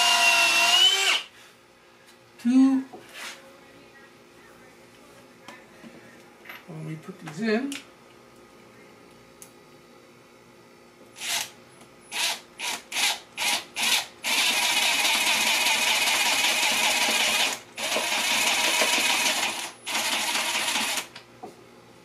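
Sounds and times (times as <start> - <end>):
cordless drill driving screws into wood: 0.0 - 1.3, 11.2 - 11.5, 12.1 - 21.1.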